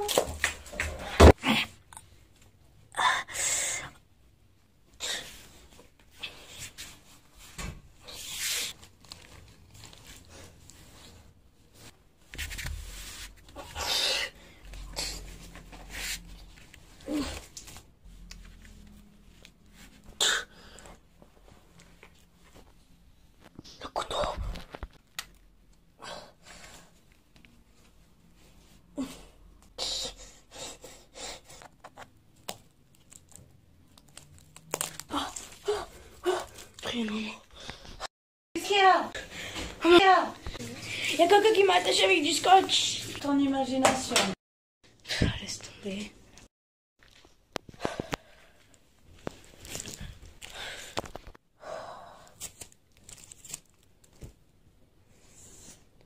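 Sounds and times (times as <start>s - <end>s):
cloth rustling and scuffling: 5.9s - 13.7s.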